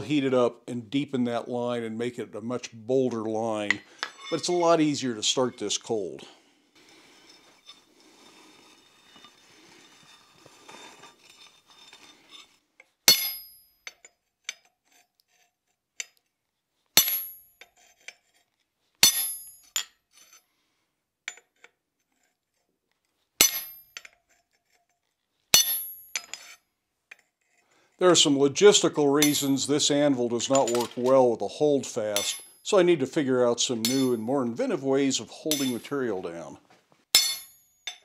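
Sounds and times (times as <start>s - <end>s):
light metallic taps and clinks: 3.7s - 4.4s
hammer striking chisel on steel: 3.7s - 4.6s, 13.1s - 14.6s, 19.0s - 19.8s, 23.4s - 24.1s, 25.6s - 26.4s, 29.2s - 29.6s, 32.2s - 32.6s, 33.8s - 34.3s, 35.5s - 35.9s, 37.2s - 38.0s
pencil scratching on steel: 14.3s - 15.8s, 17.6s - 18.6s.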